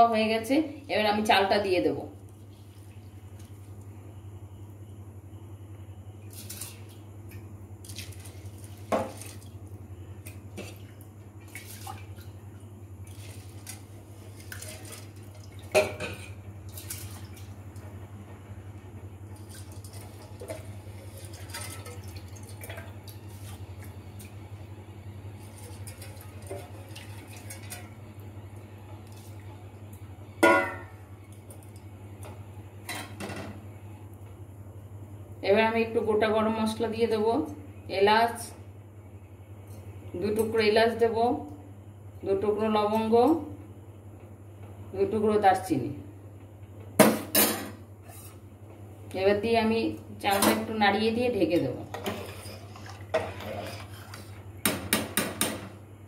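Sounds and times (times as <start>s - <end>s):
steady low hum: 0.0s - 56.0s
soft water sounds: 6.2s - 17.9s, 19.2s - 30.3s.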